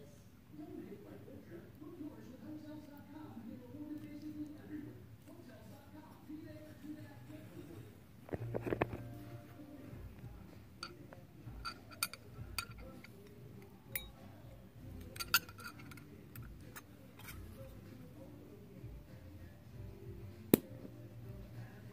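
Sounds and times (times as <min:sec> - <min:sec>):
metal tin clicks and clinks: 0:10.8 - 0:14.2, 0:15.0 - 0:17.5.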